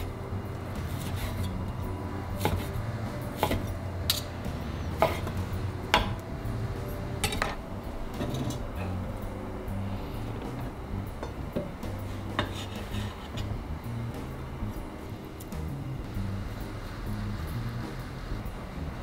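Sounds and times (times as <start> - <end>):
knife chopping on wooden board: 3.4 - 3.7, 5.0 - 5.4.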